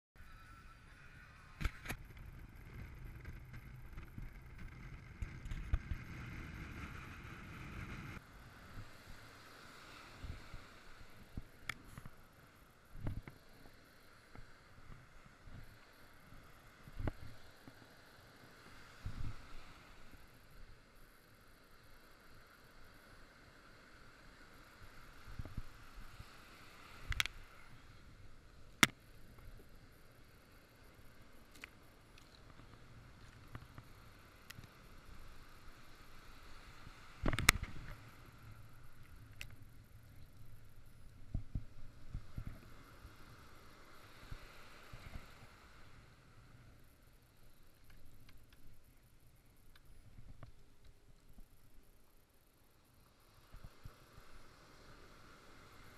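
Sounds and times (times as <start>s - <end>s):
wind hiss: 0.2s - 55.9s
muffled breaking surf: 0.9s - 51.6s
engine and tyres rumbling: 1.9s - 8.3s.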